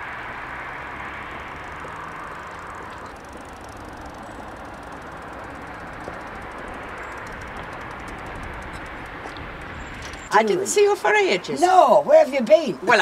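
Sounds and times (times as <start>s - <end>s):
street background rumble and hiss: 0.0s - 13.0s.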